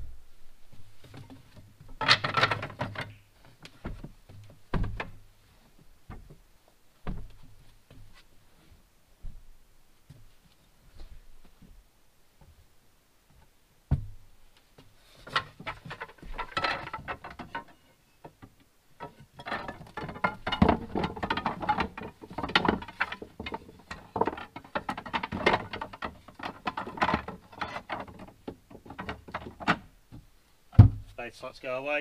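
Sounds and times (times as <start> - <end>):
wooden bed slats clattering: 1.1 - 3.2, 3.8 - 5.2, 15.2 - 30.0
thump: 4.7 - 5.2, 13.9 - 14.2, 29.6 - 31.2.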